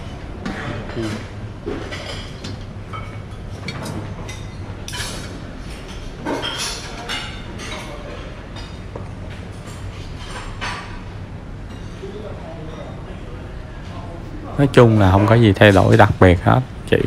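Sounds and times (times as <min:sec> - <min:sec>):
dishes and cutlery clinking: 0:00.0 - 0:13.0.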